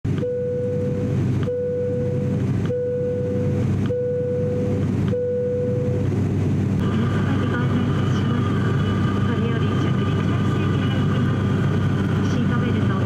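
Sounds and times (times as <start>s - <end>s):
turboprop cabin drone: 0.0s - 13.0s.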